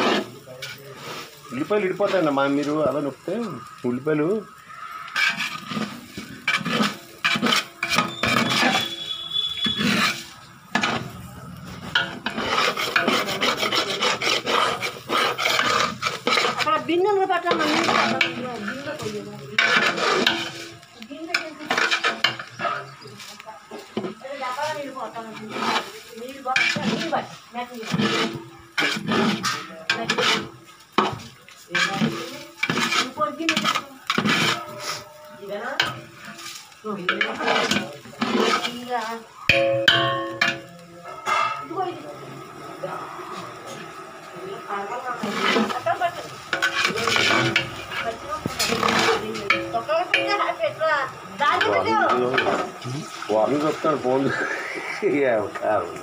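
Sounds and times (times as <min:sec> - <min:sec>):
spatula scraping rice in metal pot: 0:00.0 - 0:02.7, 0:04.4 - 0:11.2, 0:11.9 - 0:41.6, 0:45.2 - 0:50.5.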